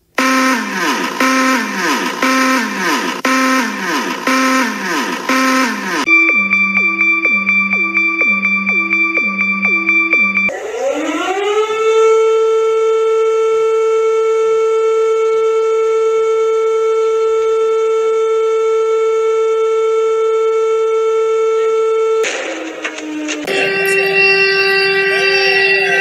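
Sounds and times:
alarm of quick falling tones: 0.2 - 12.1
civil defence siren wailing: 0.2 - 26.0.

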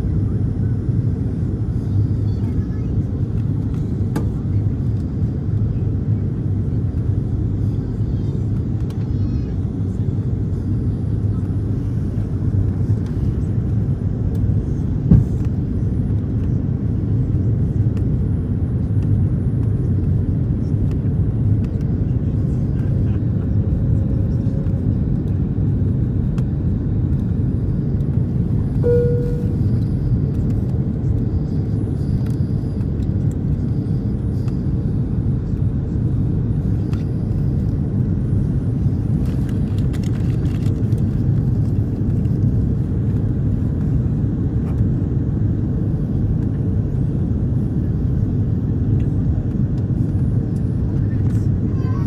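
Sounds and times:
airliner cabin rumble: 0.0 - 52.0
brief tone: 28.7 - 30.3, 31.5 - 33.0.

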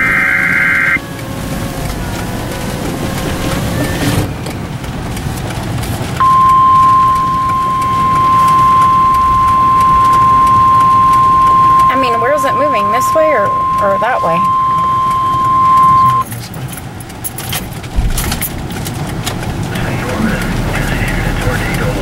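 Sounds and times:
car driving rumble: 1.0 - 22.0
steady alarm tone: 6.2 - 16.2.

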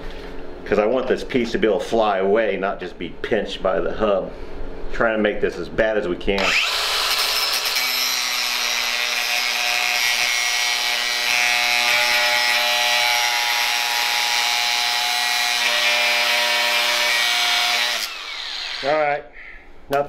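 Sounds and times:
angle grinder cutting steel: 6.4 - 19.0.

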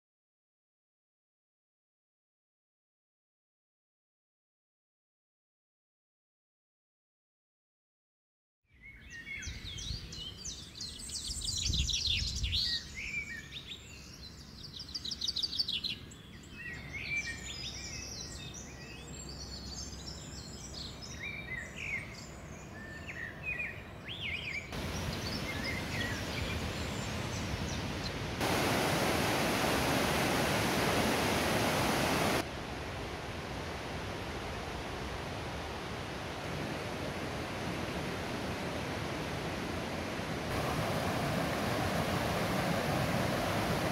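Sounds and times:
birds chirping and singing: 8.7 - 28.3
rushing water: 24.7 - 43.9
waterfall roar: 24.8 - 43.9.

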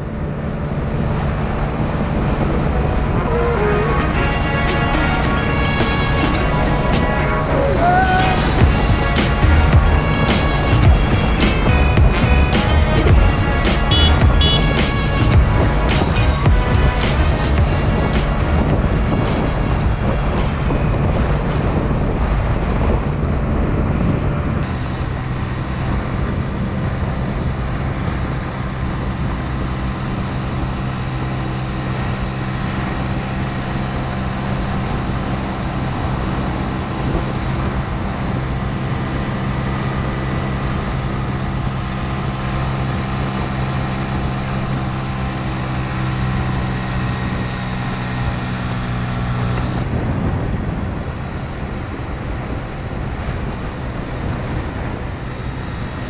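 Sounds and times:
tyre road noise: 0.0 - 56.0
wind: 0.0 - 56.0
scooter engine running: 8.3 - 21.2.

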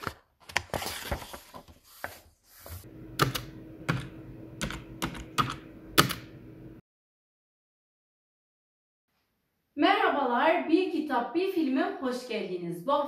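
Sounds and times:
book cover opening with page rustle: 0.0 - 2.8
faint steady hum: 2.9 - 6.8.

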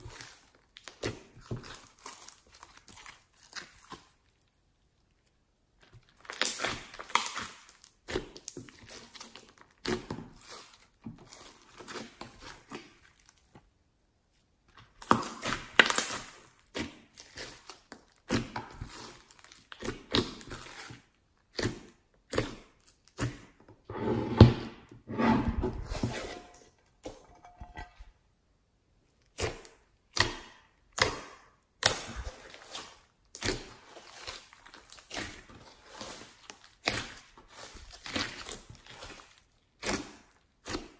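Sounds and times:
slime squelching and popping: 0.0 - 4.4, 5.7 - 13.6, 14.8 - 23.6, 29.2 - 40.9.

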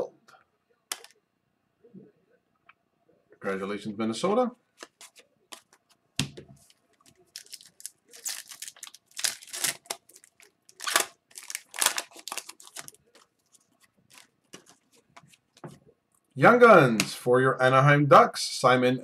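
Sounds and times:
foil wrapper crinkling and tearing: 7.2 - 14.7.

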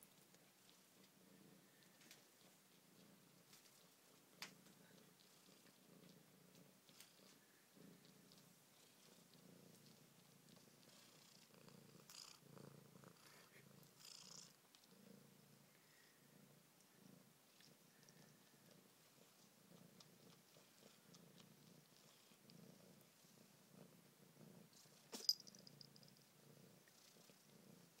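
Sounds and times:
cat purring: 0.0 - 28.0
collar bell jingle: 25.2 - 26.2.

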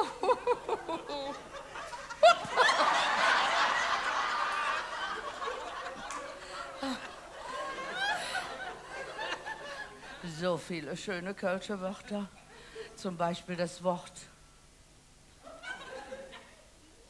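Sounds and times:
audience laughing: 0.0 - 10.2.

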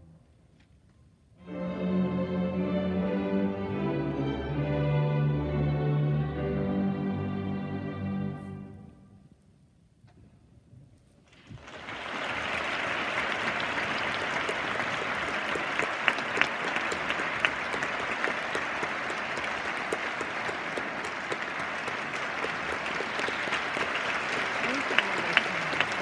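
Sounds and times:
audience applause: 11.4 - 26.0.

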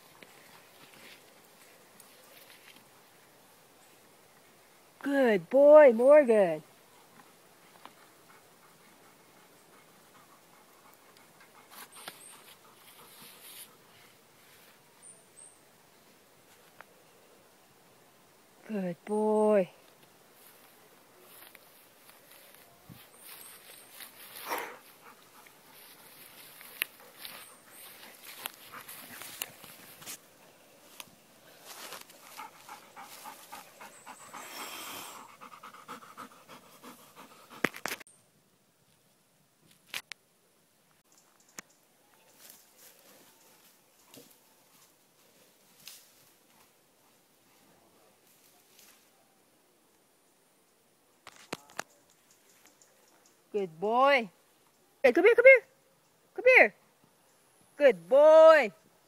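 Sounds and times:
rustling of garden plants: 0.0 - 15.1, 18.6 - 35.9, 41.0 - 49.4
soft irregular noisy bursts: 0.0 - 59.0
dog panting rapidly: 7.9 - 13.8, 32.2 - 38.0.

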